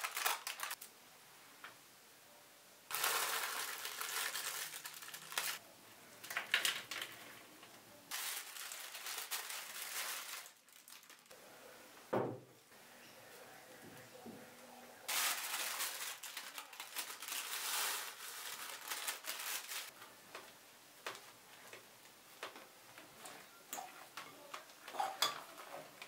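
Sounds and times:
paper crinkling: 0.0 - 0.9, 2.9 - 5.6, 8.1 - 11.4, 15.1 - 20.0.

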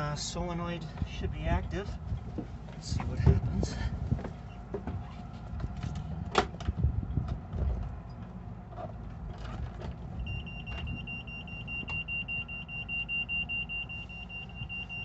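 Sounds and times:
high-pitched alarm buzzer beep: 10.3 - 15.0.

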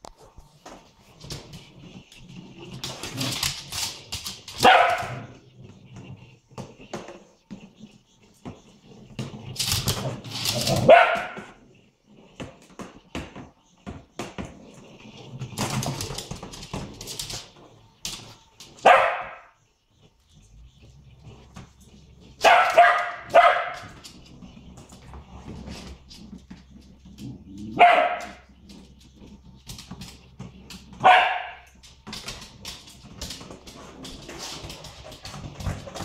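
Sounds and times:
paws clicking on wooden floor: 0.0 - 36.0
small dog barking: 4.6 - 5.3, 10.8 - 11.5, 18.8 - 19.5, 22.4 - 23.9, 27.7 - 28.4, 31.0 - 31.7
dog growling: 23.0 - 31.0.

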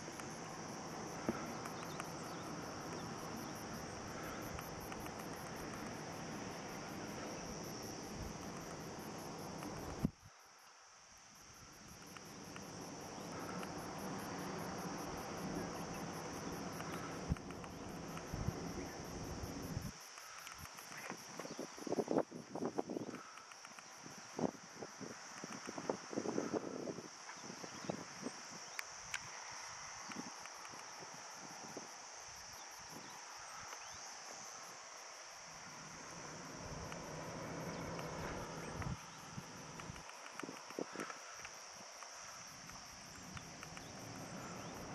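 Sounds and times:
insects buzzing and trilling: 0.0 - 44.9
low even hum: 35.5 - 41.4
low rushing noise: 35.7 - 41.0.

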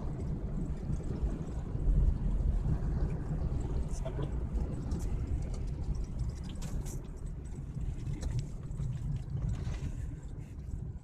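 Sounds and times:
engine and road rumble: 0.0 - 11.0
light clicks and rattles: 3.5 - 10.8.

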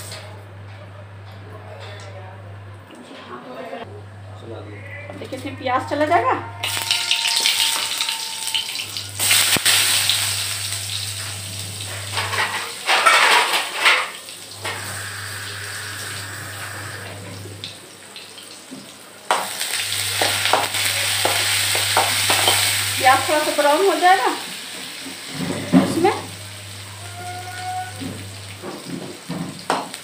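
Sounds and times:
oil sizzling in a pan: 6.6 - 30.0
spoon stirring onions in pan: 19.3 - 23.0.

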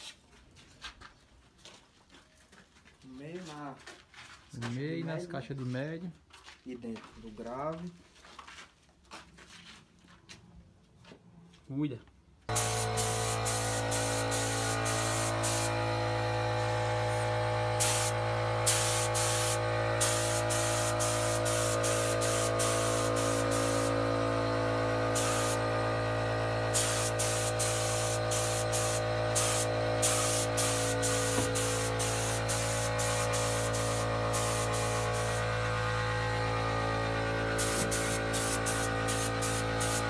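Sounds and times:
spray gun hissing: 12.5 - 40.0
steady hum: 12.5 - 40.0.

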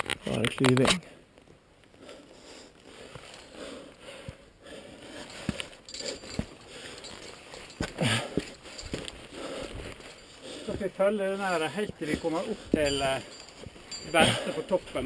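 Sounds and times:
person breathing: 2.0 - 10.8.

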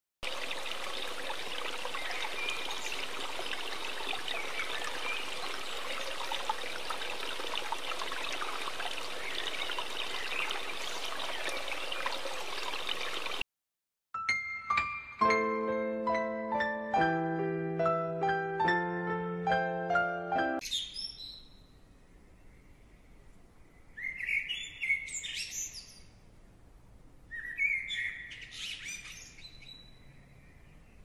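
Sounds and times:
running water: 0.2 - 13.4
piano notes: 14.2 - 20.6.

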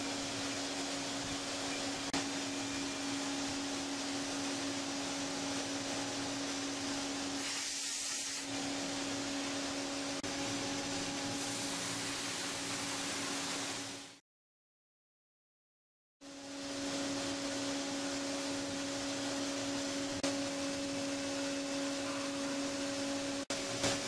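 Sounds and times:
milling machine cutting hiss: 6.8 - 8.6.

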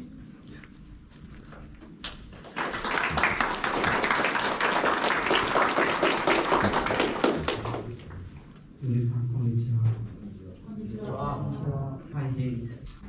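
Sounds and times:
hands clapping: 2.0 - 8.2.

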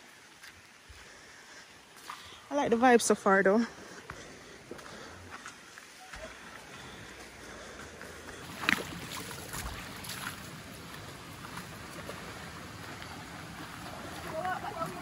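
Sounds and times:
rocky stream running: 0.0 - 15.0
footsteps wading in water: 3.8 - 15.0.

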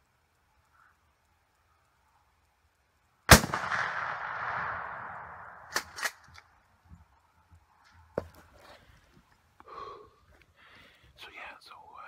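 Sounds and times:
shotgun shot with echo: 3.3 - 6.2.

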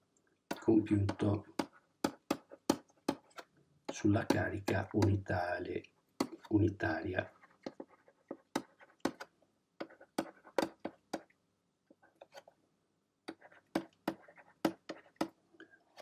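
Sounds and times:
stylus tapping on pen tablet: 0.5 - 5.3, 7.6 - 11.4, 13.2 - 15.4.

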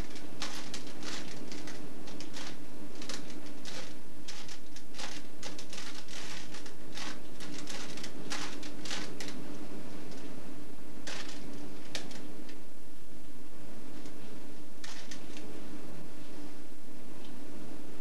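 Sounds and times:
plastic cube clacking: 0.0 - 9.4, 11.0 - 12.6, 14.8 - 15.5
steady low hum: 0.0 - 18.0.

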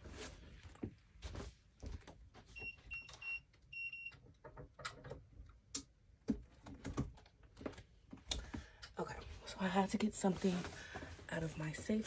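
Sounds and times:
keypad beeps: 2.6 - 4.2.

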